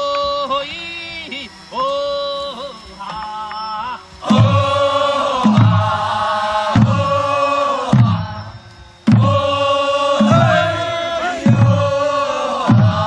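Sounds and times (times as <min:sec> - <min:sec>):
group of voices chanting: 0:04.2 - 0:13.0.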